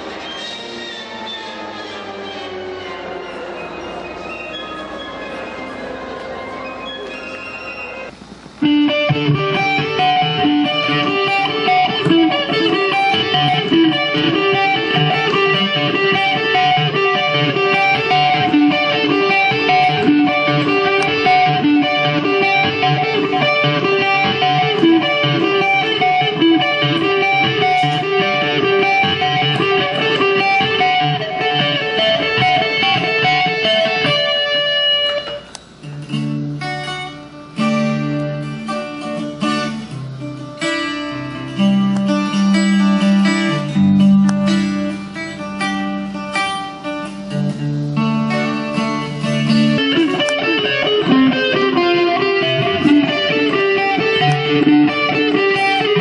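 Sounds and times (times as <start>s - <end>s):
strummed guitar: 1.2s - 56.0s
fast picked guitar: 6.5s - 56.0s.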